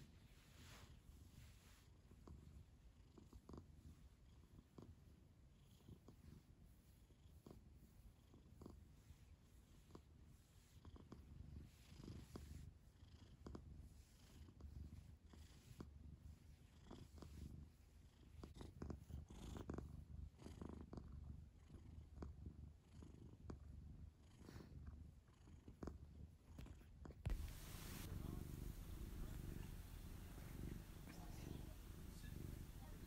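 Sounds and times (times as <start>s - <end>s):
cat purring: 0.0s - 33.0s
hand rustling over fur: 27.3s - 33.0s.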